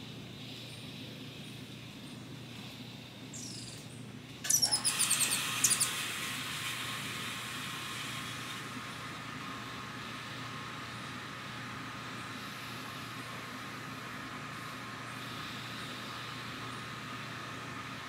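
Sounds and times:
animal call whistling and chattering: 3.4s - 3.8s, 4.5s - 6.0s.

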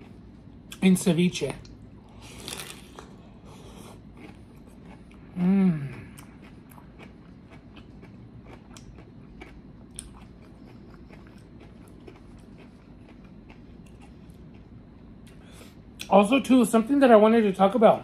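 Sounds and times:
crunchy food chewing: 1.6s - 15.4s.

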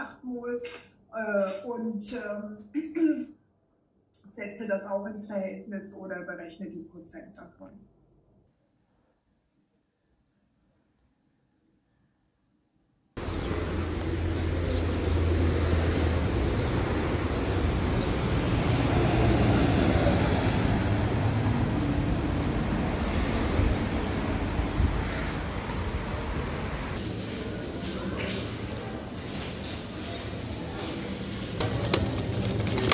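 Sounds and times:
street traffic rushing: 13.2s - 32.9s.

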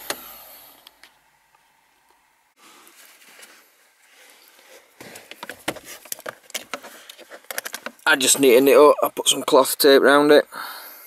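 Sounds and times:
faint rustling and handling: 2.6s - 8.8s.

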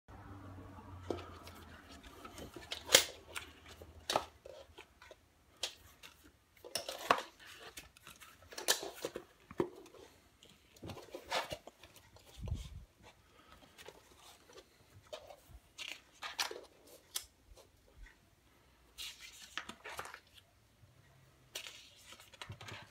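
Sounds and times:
paper rustling: 19.0s - 20.5s, 21.5s - 22.9s.

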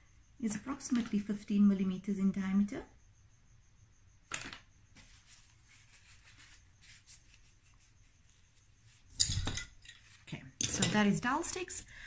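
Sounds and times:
faint soft rustles: 4.9s - 9.1s
wooden tools knocking and clattering: 9.1s - 11.1s.

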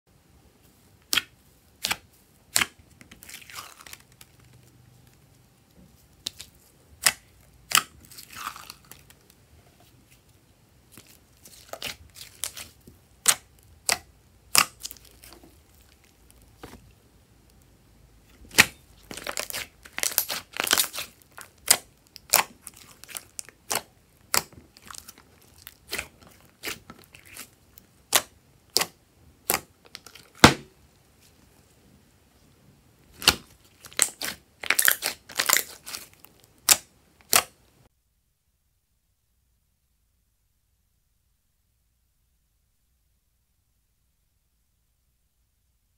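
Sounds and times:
wet squishing slime: 0.8s - 31.7s, 33.0s - 37.6s.

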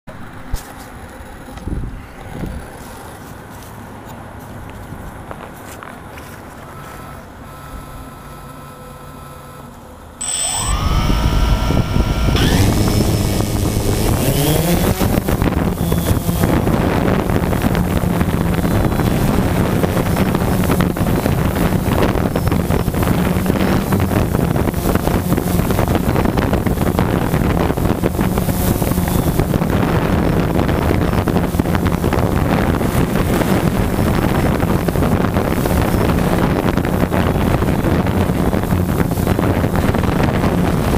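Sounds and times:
wind noise: 1.6s - 3.1s, 10.2s - 40.9s
drone propellers buzzing: 6.8s - 40.9s.

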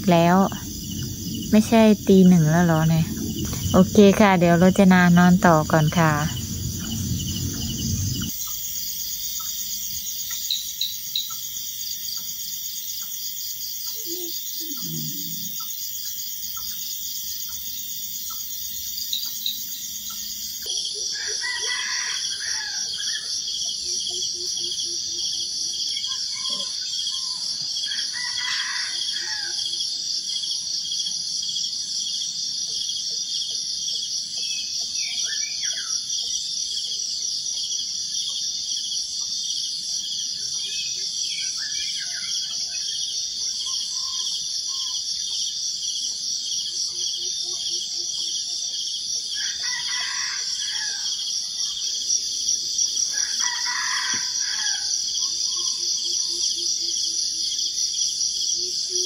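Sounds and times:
insects trilling: 0.0s - 59.0s
rooster crowing: 4.7s - 8.3s, 21.1s - 23.1s, 27.9s - 29.7s, 49.3s - 51.3s, 53.1s - 55.1s.

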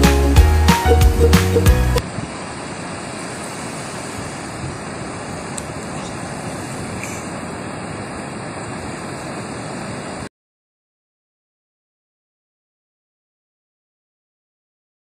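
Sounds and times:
surf washing onto beach: 2.0s - 10.3s.

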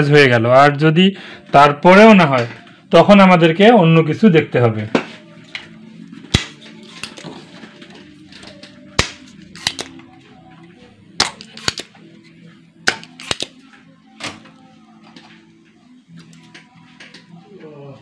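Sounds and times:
desoldering pump snapping: 6.3s - 7.2s, 8.3s - 10.0s, 11.2s - 12.0s, 12.8s - 13.6s.

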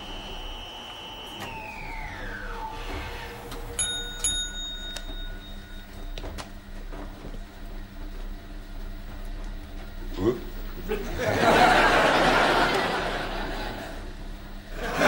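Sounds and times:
low machinery hum: 0.0s - 15.0s
small bell dinging: 3.8s - 6.2s.

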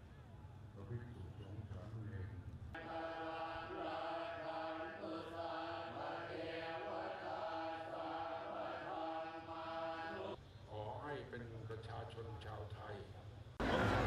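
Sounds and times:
monks chanting in unison: 2.8s - 10.4s.

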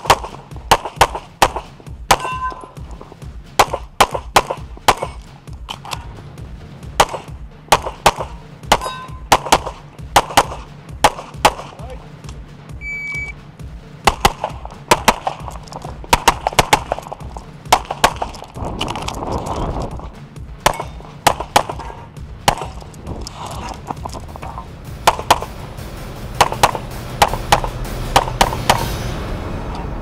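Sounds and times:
pistol shots: 0.0s - 2.8s, 3.5s - 6.0s, 6.9s - 12.4s, 14.0s - 19.2s, 20.0s - 23.0s, 23.6s - 25.5s, 26.4s - 28.9s
faint music: 0.0s - 30.0s
shot timer beep: 12.8s - 13.4s.

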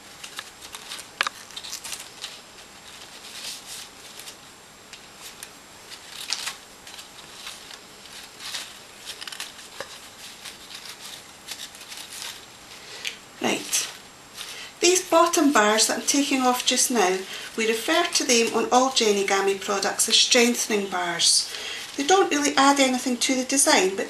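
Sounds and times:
card scraping and rustling: 0.2s - 4.4s, 5.0s - 12.5s.

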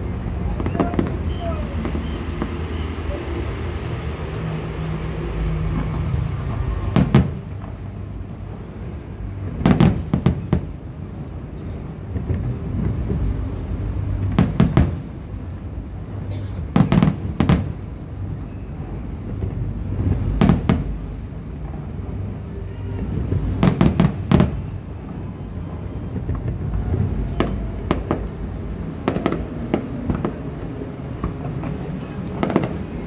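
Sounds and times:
fireworks bursting with sharp bangs: 0.0s - 4.3s, 5.3s - 8.6s, 9.4s - 10.8s, 14.3s - 15.2s, 16.6s - 17.9s, 19.2s - 33.0s
low background rumble: 0.0s - 33.0s.

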